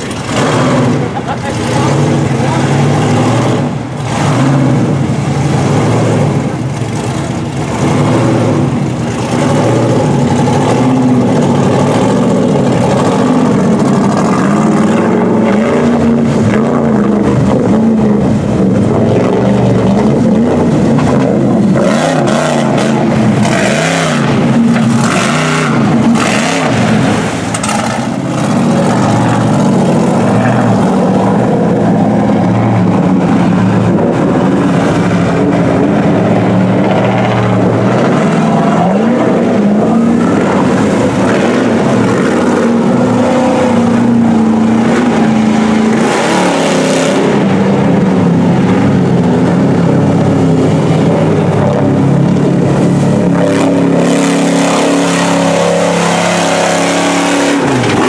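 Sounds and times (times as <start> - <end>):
truck engines revving: 0.0 - 58.0
water splashing and surging: 0.0 - 58.0.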